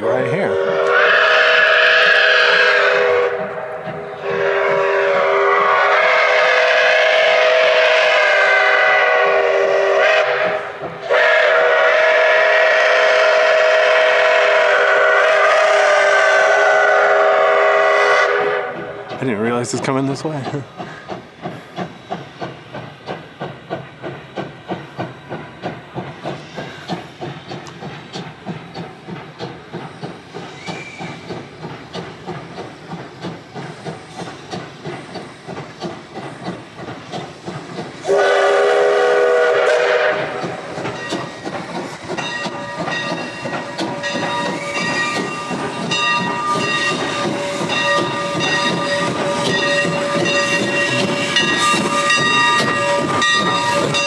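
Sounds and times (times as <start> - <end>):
steam hissing: 0.0 - 54.0
steam locomotive exhaust chuffing: 0.0 - 54.0
steam whistle chord: 0.6 - 18.8, 38.0 - 40.4.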